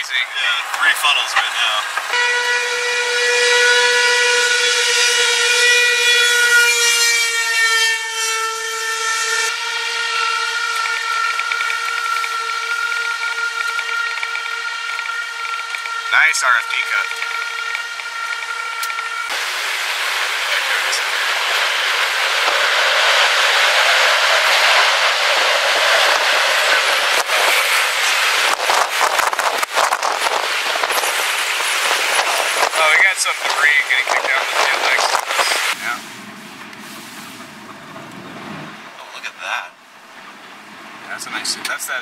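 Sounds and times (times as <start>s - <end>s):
loud steady warning tone: 0.0s - 38.1s
strong storm wind rushing: 19.3s - 35.8s.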